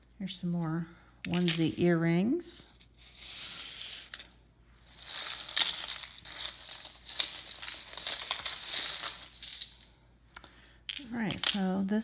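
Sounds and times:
metal jewelry clinking: 0.0s - 2.1s, 3.9s - 10.3s.

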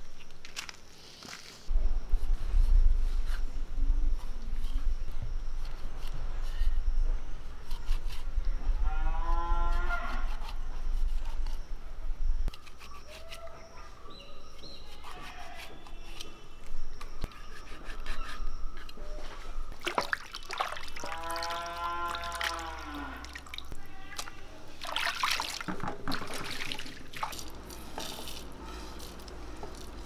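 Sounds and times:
cow mooing: 21.0s - 23.4s.

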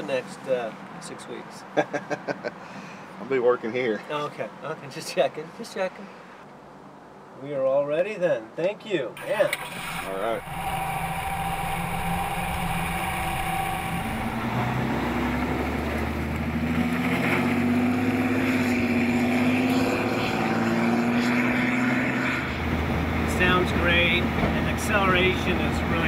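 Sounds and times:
diesel truck engine accelerating: 9.2s - 26.0s.

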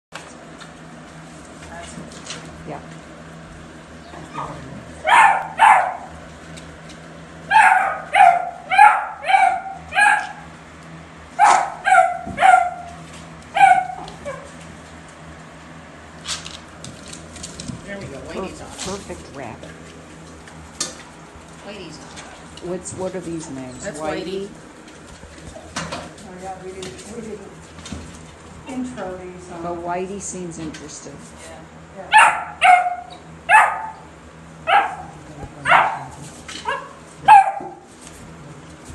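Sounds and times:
puppies barking: 4.3s - 6.2s, 7.4s - 10.6s, 11.3s - 14.6s, 32.1s - 37.9s.

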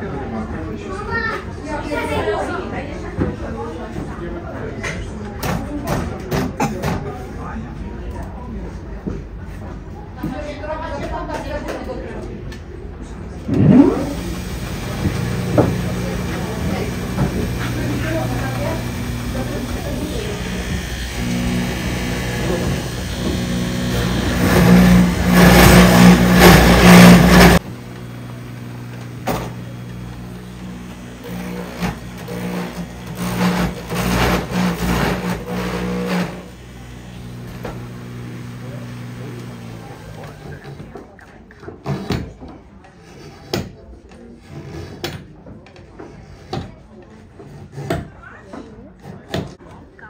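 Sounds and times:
machine motor hum: 13.5s - 40.7s
cutter grinding into wood: 13.5s - 40.9s.

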